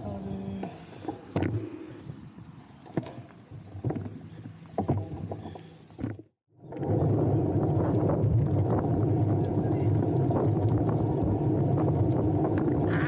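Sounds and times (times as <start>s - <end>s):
road bicycle rushing noise: 6.6s - 13.0s.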